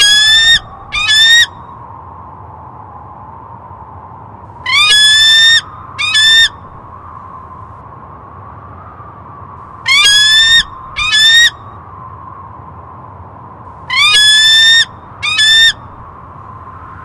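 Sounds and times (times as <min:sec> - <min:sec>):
eagle screaming: 0:00.0 - 0:01.6, 0:04.7 - 0:06.6, 0:09.9 - 0:11.6, 0:13.9 - 0:15.8.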